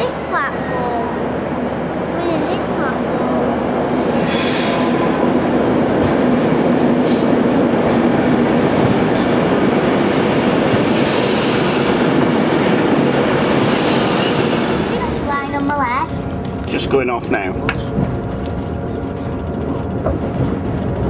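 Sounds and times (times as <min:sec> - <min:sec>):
electric train passing: 0:00.0 - 0:21.0.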